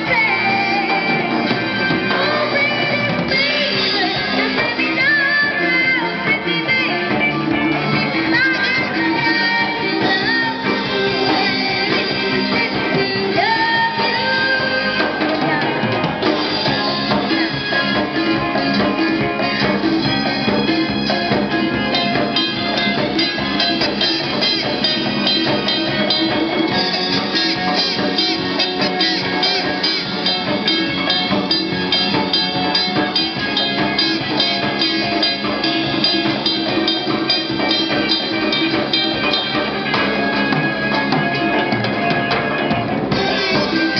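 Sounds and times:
live pop-rock band: 0.0s - 43.9s.

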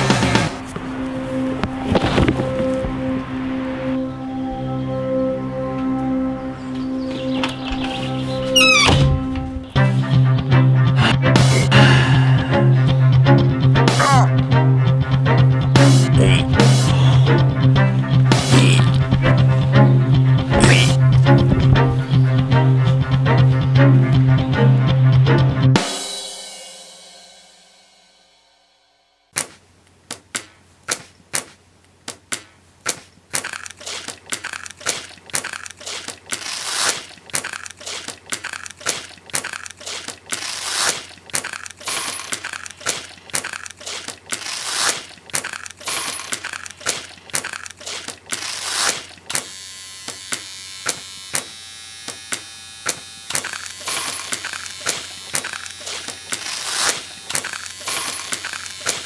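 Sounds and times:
steady buzzing noise: 48.0s - 59.0s.

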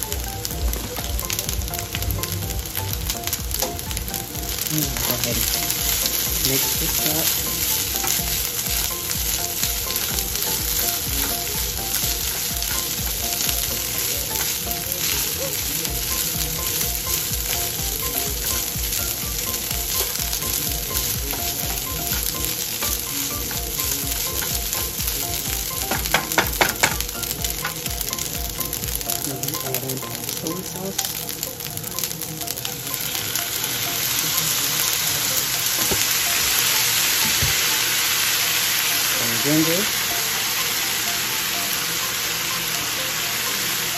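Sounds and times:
rice sizzling in oil: 0.0s - 43.9s
spatula knocking on pan: 24.1s - 29.0s.

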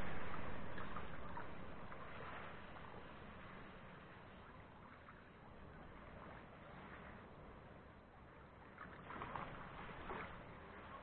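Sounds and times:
wind: 0.0s - 11.0s.

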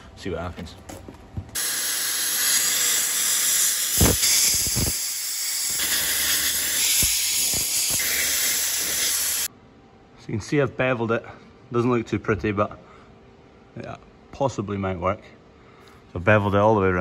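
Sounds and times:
plasma cutter arc hissing: 1.6s - 9.5s.

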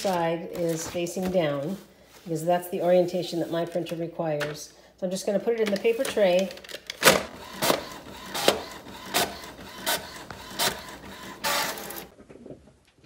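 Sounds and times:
paper feeding out of printer: 5.9s - 12.1s
printer head strokes: 7.4s - 12.1s.

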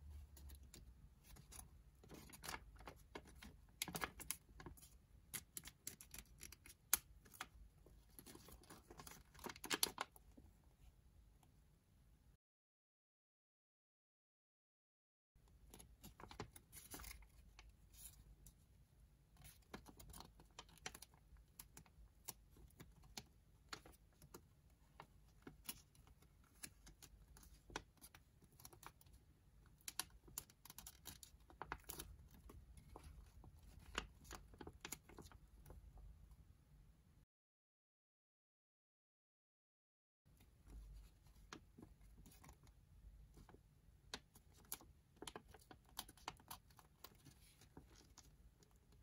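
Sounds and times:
paper crackling and rustling: 0.3s - 10.2s, 19.4s - 29.2s, 29.8s - 35.8s, 40.5s - 49.0s.

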